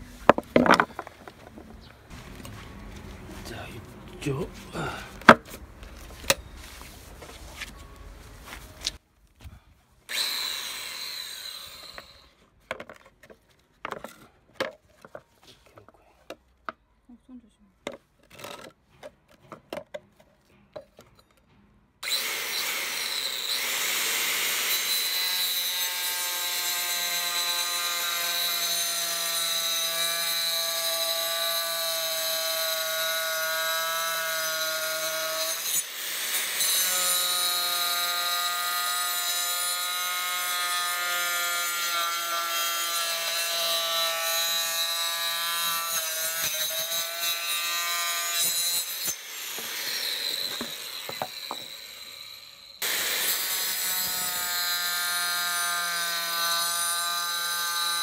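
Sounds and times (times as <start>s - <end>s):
electric saw cutting metal: 10.1s - 12.4s, 22.0s - 58.0s.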